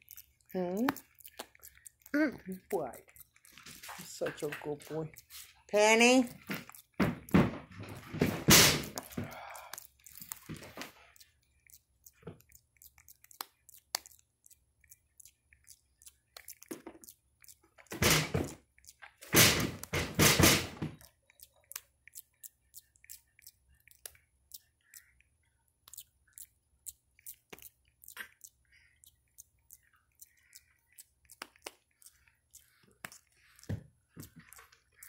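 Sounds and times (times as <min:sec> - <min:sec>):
wet lip and teeth clicks: 0:00.0 - 0:35.0.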